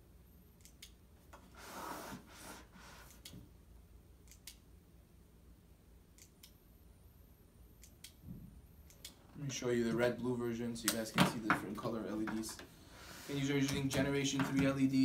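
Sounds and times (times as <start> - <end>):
rubbing scrape on tabletop: 1.5 - 3.1.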